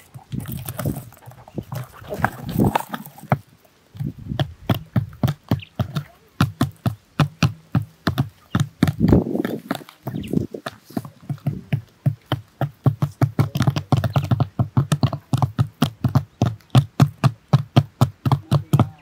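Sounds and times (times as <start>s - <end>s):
birds scratching: 0.0s - 6.4s, 8.3s - 11.7s.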